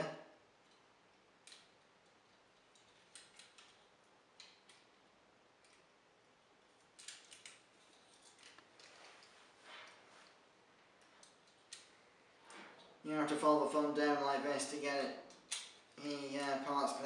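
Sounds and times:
plastic toy parts clicking: 0:01.4 - 0:04.9, 0:07.0 - 0:08.6, 0:11.0 - 0:11.9.

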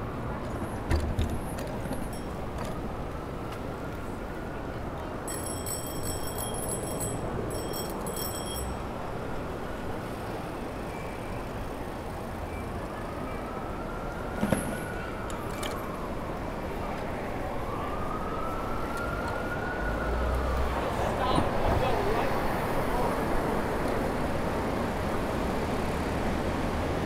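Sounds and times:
city street traffic: 0:00.0 - 0:27.0
high metallic ringing: 0:05.3 - 0:08.8
distant emergency siren wailing: 0:09.8 - 0:27.0.

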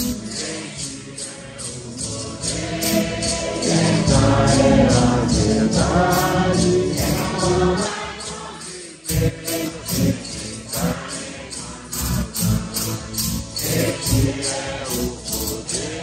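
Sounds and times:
congregation singing a hymn: 0:00.0 - 0:16.0
maracas shaking: 0:00.0 - 0:16.0.

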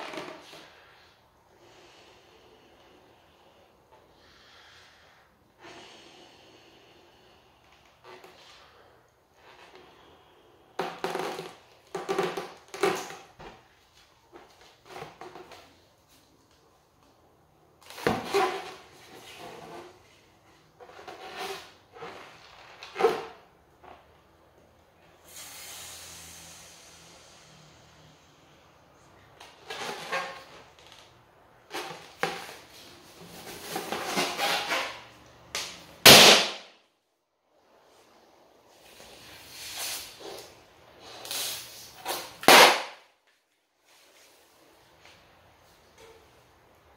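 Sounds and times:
balloon rubbing and rustling: 0:00.0 - 0:01.1, 0:31.6 - 0:35.1
breaths blowing up balloon: 0:25.2 - 0:28.6
balloon bursting with loud pop: 0:36.0 - 0:36.7, 0:42.4 - 0:43.0.

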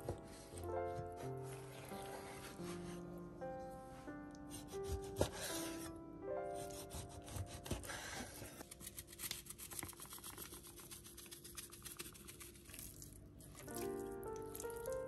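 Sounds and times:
faint background music: 0:00.0 - 0:09.0, 0:12.7 - 0:15.0.

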